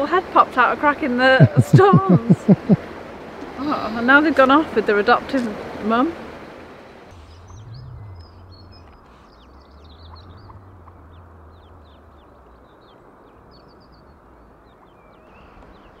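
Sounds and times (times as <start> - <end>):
steady low rumble: 7.1 - 13.3
ducklings peeping: 7.1 - 15.5.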